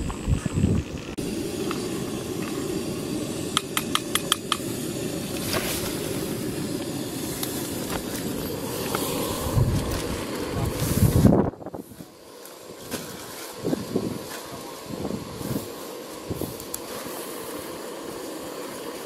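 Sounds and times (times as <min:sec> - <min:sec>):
camp stove burner hissing: 0:00.0 - 0:19.0
spoon clicking against pot: 0:03.6 - 0:04.6.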